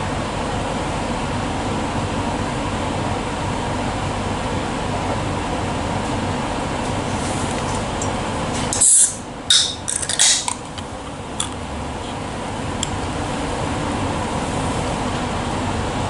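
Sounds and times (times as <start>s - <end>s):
short sharp hissing bursts: 8.7s - 9.2s.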